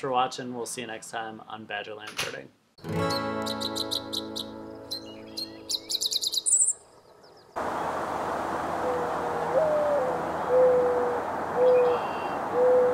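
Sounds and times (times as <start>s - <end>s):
background hiss: 0.0s - 2.8s, 6.0s - 12.7s
guitar jingle with high chirps: 2.8s - 5.7s
dove cooing: 8.8s - 12.9s.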